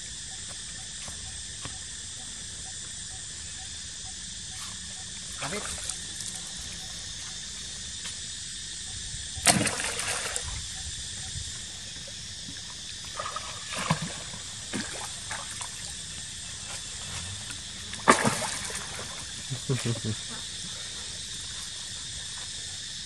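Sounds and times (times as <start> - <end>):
steady outdoor hiss: 0.0 - 23.0
water splashing and sloshing: 5.3 - 7.4, 9.4 - 19.8.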